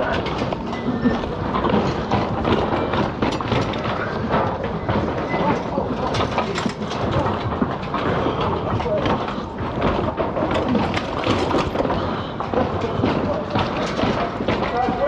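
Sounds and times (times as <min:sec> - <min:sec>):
bike rattling down stairs: 0:00.0 - 0:15.0.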